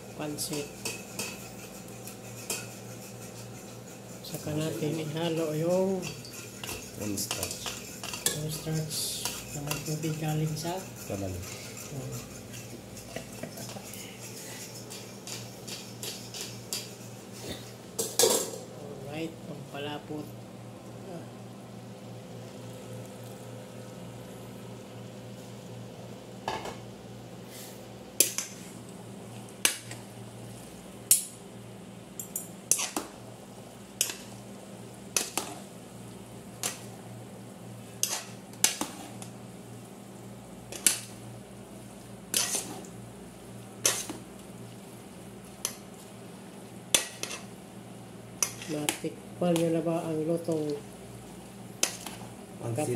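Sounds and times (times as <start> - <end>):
steady low hum: 0.0 - 52.9
metal utensils clanking on pot: 4.7 - 17.0.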